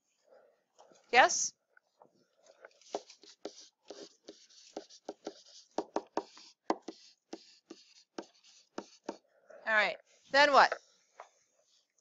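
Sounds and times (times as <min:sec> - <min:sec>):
stylus tapping and scratching: 0:02.0 - 0:09.3.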